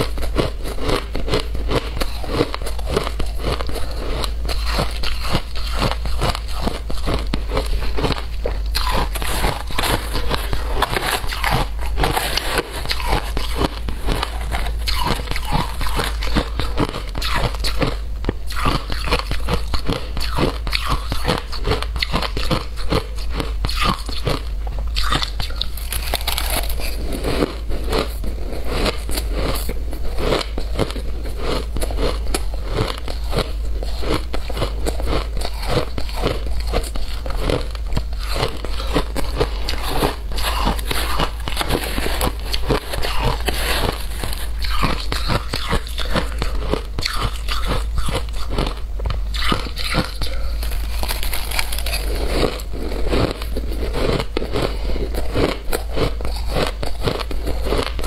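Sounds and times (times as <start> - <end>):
shaved ice crunching: 25.8 - 28.1, 49.9 - 54.7.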